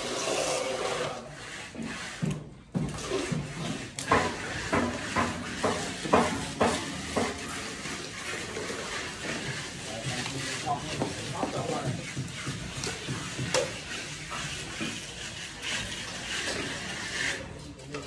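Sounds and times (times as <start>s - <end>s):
trowel scraping: 0.1s - 18.0s
wet cement slapping: 1.9s - 18.0s.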